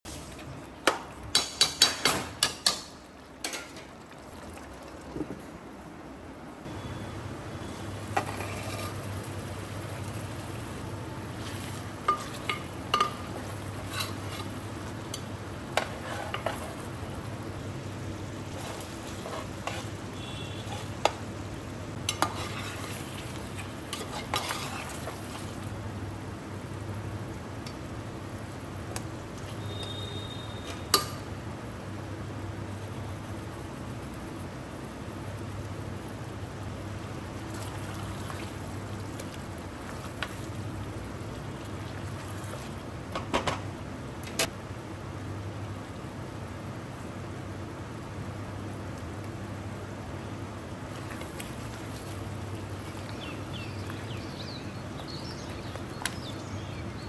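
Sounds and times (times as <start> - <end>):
food sizzling in a pot: 6.7 - 25.8
spoon clinking and scraping pot: 11.4 - 16.8, 22.1 - 23.0, 23.9 - 25.1.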